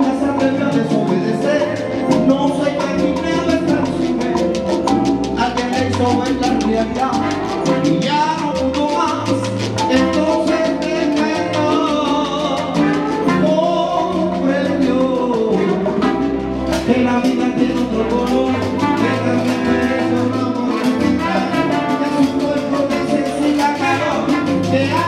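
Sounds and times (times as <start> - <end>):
hand-drum percussion: 0.0 - 25.0
salsa band playing: 0.0 - 25.0
people singing: 10.4 - 25.0.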